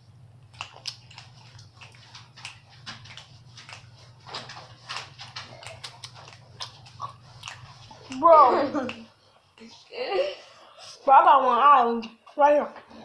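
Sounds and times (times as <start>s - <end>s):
mouth chewing wetly: 0.4s - 9.9s.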